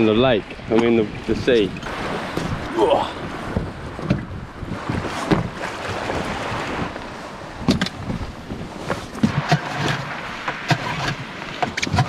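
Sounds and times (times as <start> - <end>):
sea water sloshing around boat: 0.0 - 12.0
wind on microphone: 0.0 - 12.0
knocks and thumps of people boarding: 2.3 - 2.6, 3.5 - 5.6, 7.6 - 10.6.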